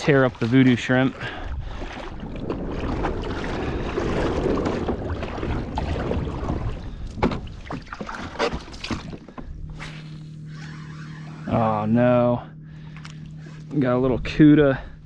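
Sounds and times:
water sloshing around legs: 0.0 - 11.5
gear knocking on kayak hull: 2.4 - 9.6.

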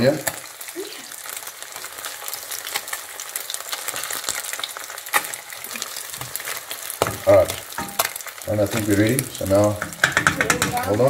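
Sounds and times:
fish sizzling in hot oil: 0.0 - 11.0
spatula moving food in pan: 3.9 - 11.0
sharp knock: 9.8 - 10.8.

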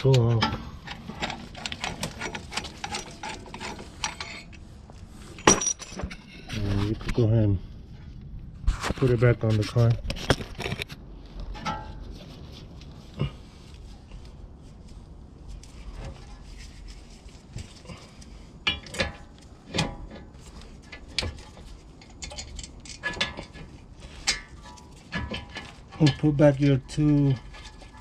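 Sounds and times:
metal clinks and knocks: 0.0 - 4.6, 5.3 - 6.5, 18.5 - 28.0.

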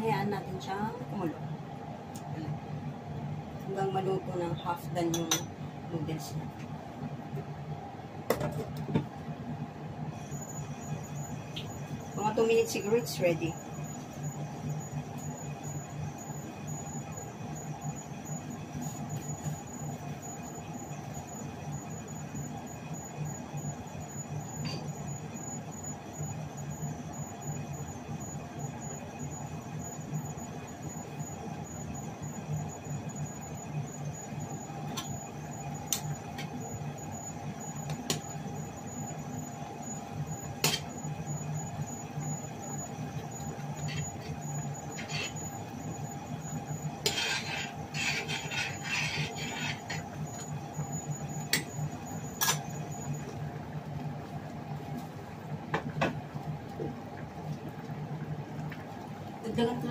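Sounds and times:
kitchen hum: 0.0 - 59.9
soup boiling in pot: 13.0 - 59.9.

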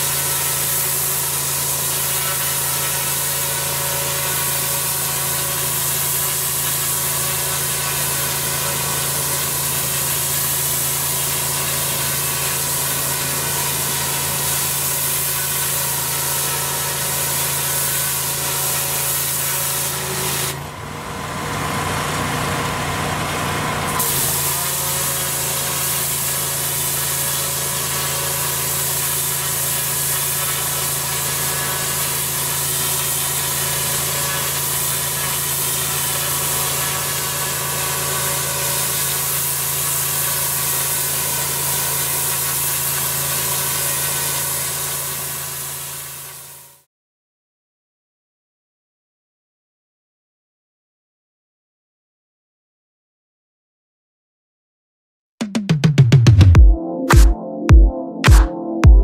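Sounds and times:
high-pressure water hiss: 0.0 - 20.5, 24.0 - 46.5
pressure washer engine drone: 0.0 - 46.6.

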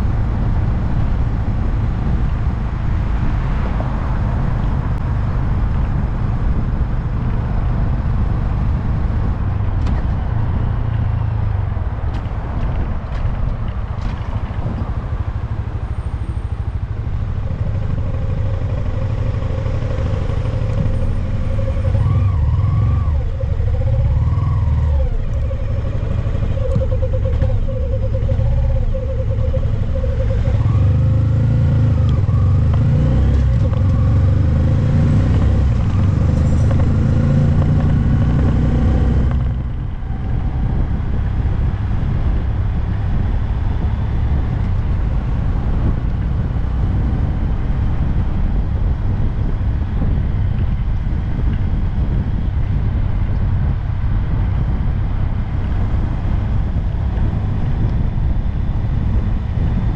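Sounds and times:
road noise: 0.0 - 59.9
motorcycle engine running: 12.6 - 59.9.

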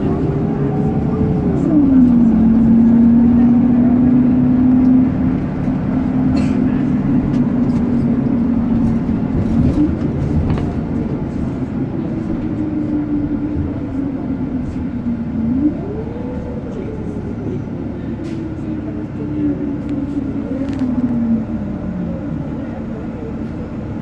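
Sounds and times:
road noise: 0.0 - 24.0
vehicle motor whine: 0.0 - 24.0.

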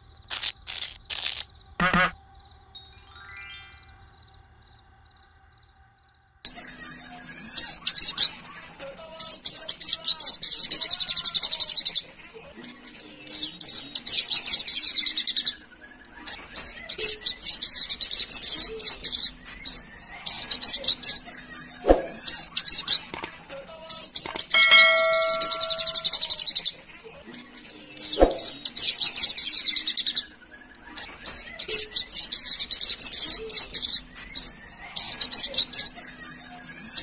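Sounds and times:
bird twittering: 24.2 - 26.7
ringing chime: 24.5 - 26.5.

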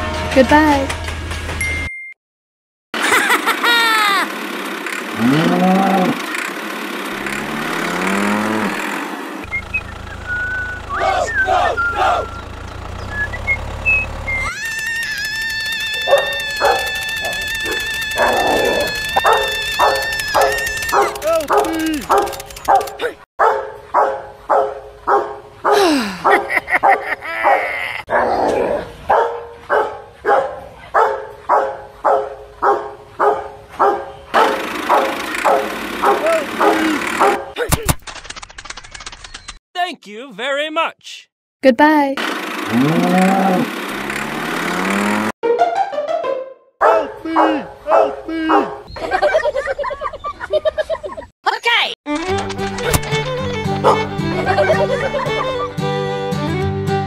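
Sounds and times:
steady engine-like noise: 3.0 - 23.2, 34.3 - 37.6, 42.2 - 45.4
cow mooing: 5.2 - 6.2, 7.2 - 8.9, 42.7 - 43.7
dog barking: 16.1 - 18.4, 19.2 - 28.4, 29.1 - 37.6, 46.8 - 48.9, 53.8 - 54.0.

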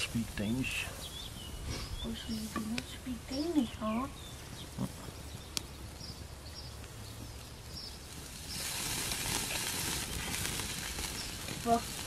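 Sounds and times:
burger patties sizzling on grill: 7.0 - 12.0.

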